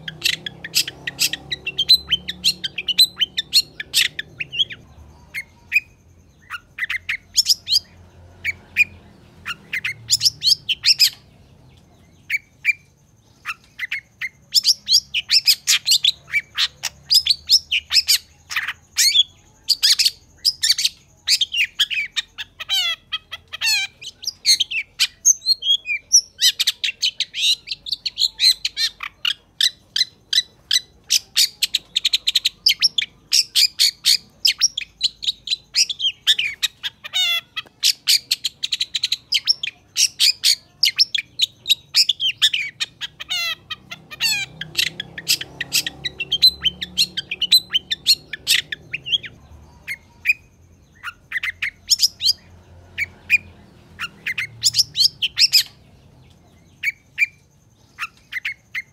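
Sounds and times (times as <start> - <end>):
shrike singing rapid chatter: 0.0 - 58.9.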